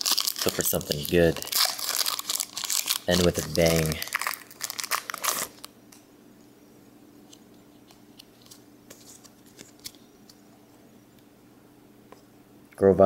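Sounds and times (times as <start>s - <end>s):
cards rustling and ticking: 0.0s - 5.7s
foil wrapper crinkling and tearing: 0.0s - 5.7s.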